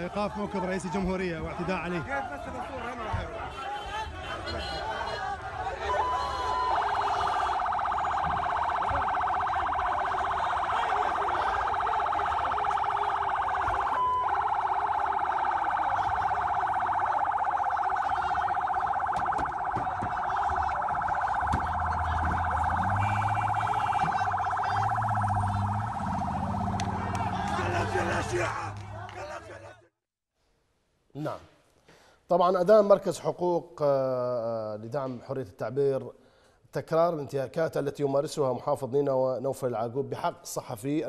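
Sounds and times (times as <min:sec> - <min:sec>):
police siren warbling: 0:05.8 - 0:28.9.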